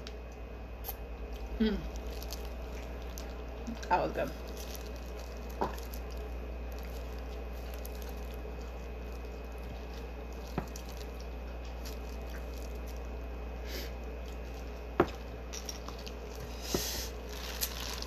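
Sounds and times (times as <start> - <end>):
steady low hum: 0.0 - 18.0
wet squishing: 1.3 - 13.3, 13.9 - 18.0
shrimp shell crackling: 1.4 - 13.2, 17.1 - 18.0.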